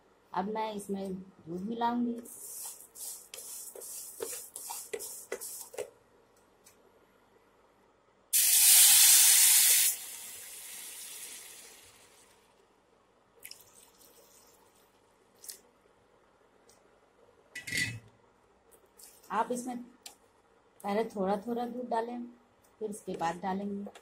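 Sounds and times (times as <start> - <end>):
milk sizzling in hot pan: 8.4 - 12.3.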